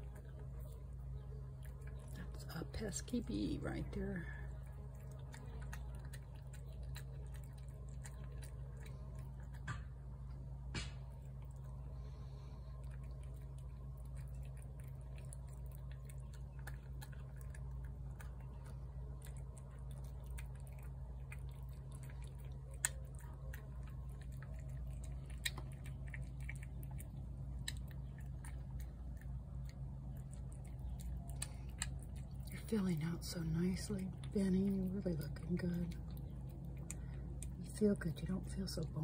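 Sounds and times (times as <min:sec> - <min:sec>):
cat chewing wet food: 0:00.0 - 0:39.0
steady low hum: 0:00.0 - 0:39.0.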